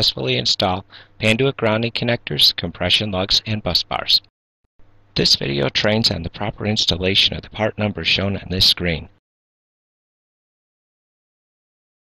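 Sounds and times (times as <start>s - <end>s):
narration voice: 0.0s - 4.3s, 5.2s - 9.2s.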